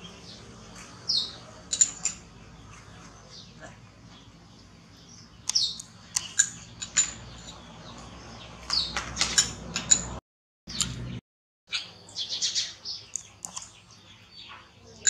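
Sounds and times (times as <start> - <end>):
high-pitched chirps and squeaks: 5.5 - 7.7.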